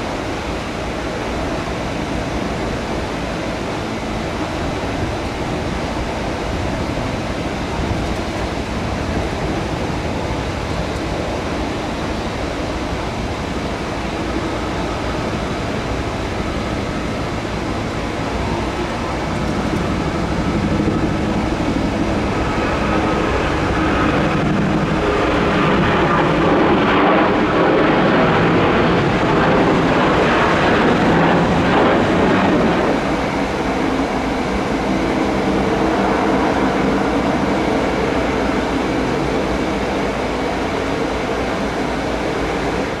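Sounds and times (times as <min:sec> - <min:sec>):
jet engines at takeoff: 0:00.0 - 0:43.0.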